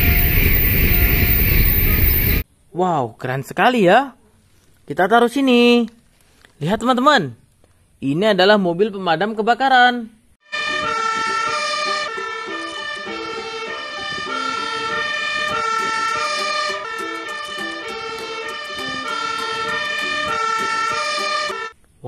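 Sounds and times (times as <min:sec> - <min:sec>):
fire engine two-tone siren: 0:00.0 - 0:02.4, 0:10.5 - 0:21.8.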